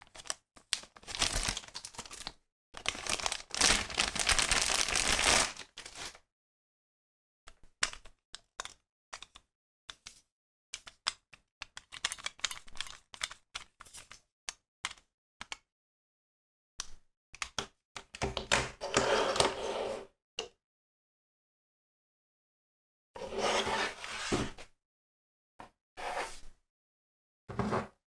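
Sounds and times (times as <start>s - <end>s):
plastic toy parts clicking: 10.8s - 13.7s.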